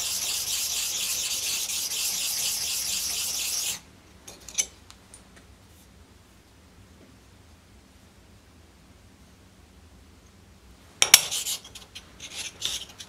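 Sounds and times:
blade rasping on sharpening stone: 0:00.0 - 0:03.8.

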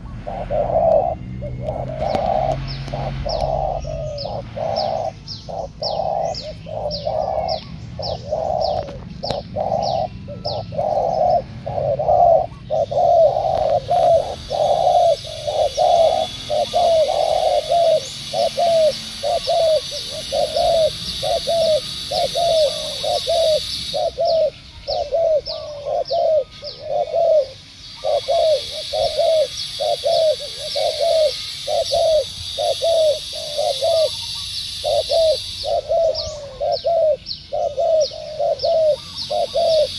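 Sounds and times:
bird chirps: 0:00.0 - 0:39.9
doves cooing: 0:00.0 - 0:39.9
steady high hiss: 0:12.9 - 0:39.9.

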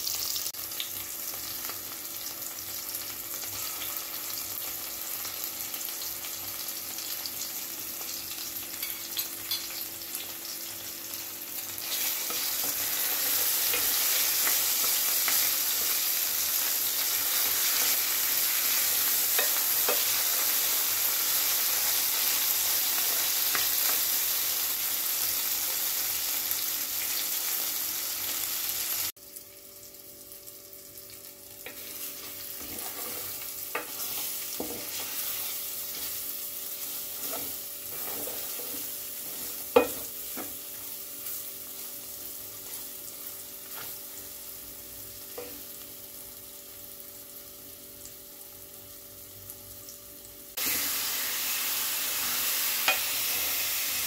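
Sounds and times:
vegetables sizzling in hot oil: 0:00.0 - 0:54.0
spatula scraping pot: 0:31.7 - 0:36.2, 0:36.8 - 0:40.5.

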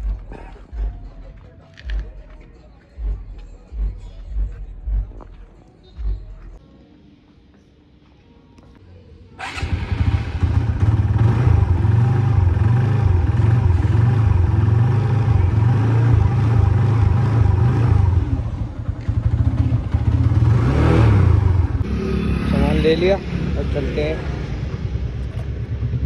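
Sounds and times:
vehicle engine running: 0:09.5 - 0:26.0.

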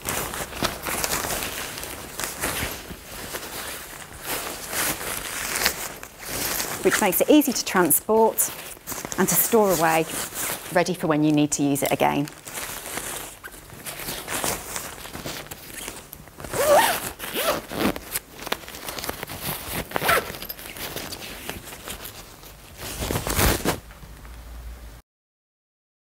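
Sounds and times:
cloth rustling: 0:00.0 - 0:23.9
zip on fabric bag: 0:15.7 - 0:18.1, 0:19.6 - 0:21.2.

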